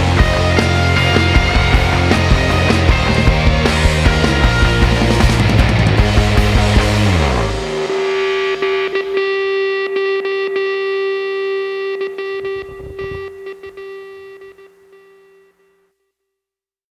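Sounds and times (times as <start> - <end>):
rock music: 0.0 - 15.0
held guitar note ringing: 4.4 - 15.8.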